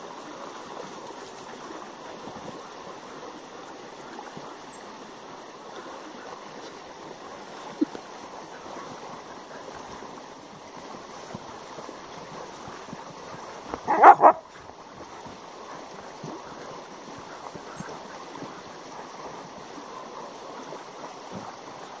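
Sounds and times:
stream rushing: 0.0s - 22.0s
dog barking: 13.9s - 14.4s.

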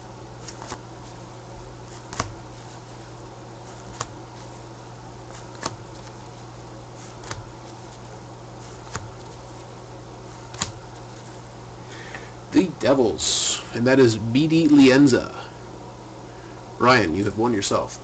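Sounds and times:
steady low hum: 0.0s - 18.0s
cards slapping on a pile: 0.4s - 1.2s, 1.8s - 2.9s, 3.6s - 9.7s, 10.3s - 11.4s.

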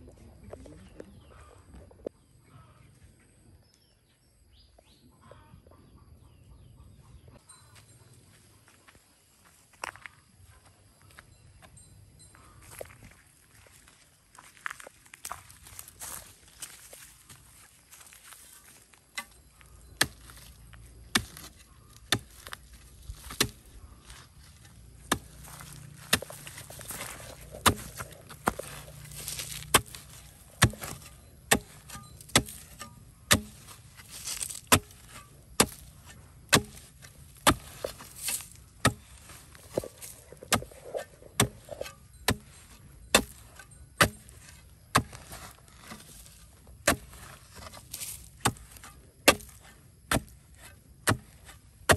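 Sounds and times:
loosened earth scraping: 14.5s - 51.9s
digging tool chopping hard soil: 19.2s - 51.9s.

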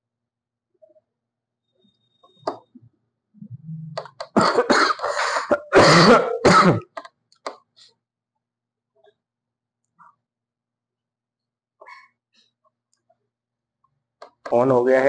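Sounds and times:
low hum: 3.4s - 4.0s
person coughing: 4.3s - 7.0s.

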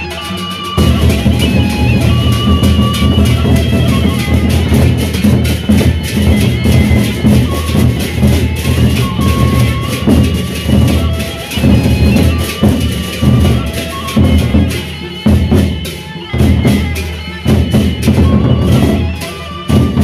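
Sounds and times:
bamboo flute melody: 0.0s - 20.0s
rapid metallic cymbal strikes: 0.0s - 20.0s
barrel drums beaten with sticks: 0.8s - 15.8s.

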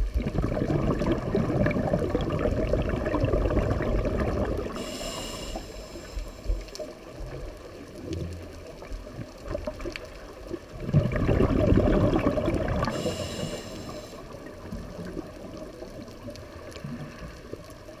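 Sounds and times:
exhaled bubbles: 0.0s - 8.2s, 9.0s - 18.0s
regulator inhalation hiss: 4.8s - 6.8s, 12.9s - 14.4s.

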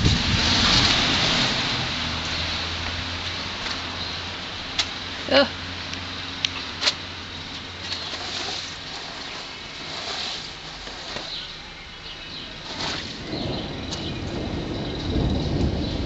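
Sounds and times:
footsteps crunching on hailstones: 6.9s - 11.6s, 12.3s - 16.0s.

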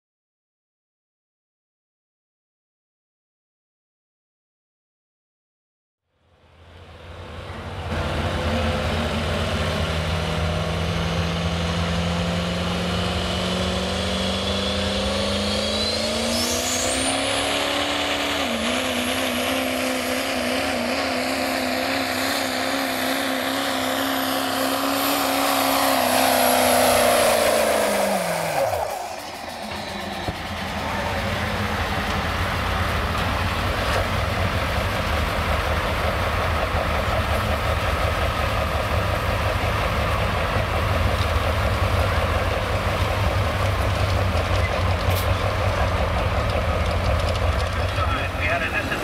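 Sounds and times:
pickup engine at full throttle: 6.6s - 49.0s
high whistling whine: 13.5s - 23.0s, 23.7s - 33.0s.

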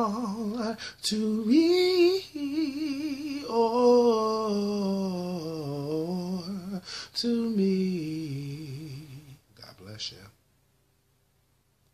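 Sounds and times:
man singing unaccompanied: 0.0s - 9.4s.

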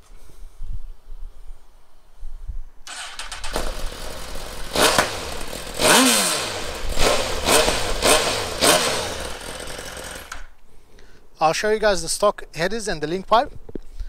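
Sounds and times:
motorcycle engine starting: 2.8s - 10.6s
motorcycle engine revving: 2.9s - 10.5s.

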